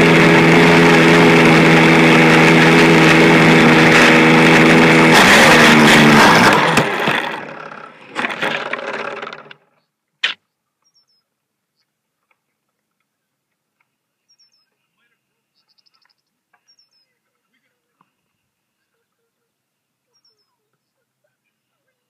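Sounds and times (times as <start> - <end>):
small airplane engine running: 0.0 - 9.7
sharp click: 10.2 - 10.4.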